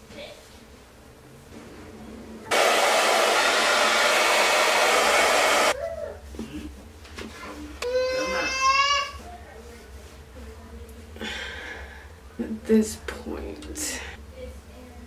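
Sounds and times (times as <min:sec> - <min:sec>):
hair dryer blowing: 0:02.5 - 0:05.8.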